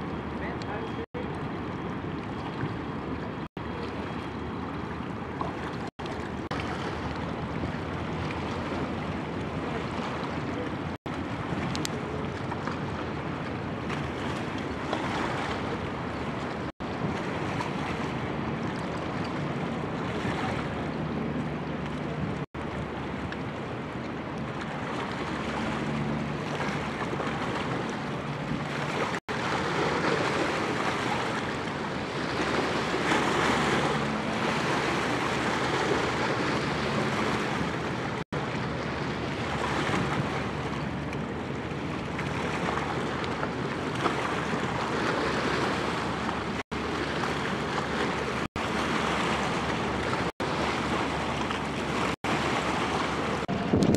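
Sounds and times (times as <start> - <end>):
faint low boat engine hum: 0.0 - 53.9
river water splashing: 0.0 - 53.9
wind rushing over microphone: 42.0 - 53.9.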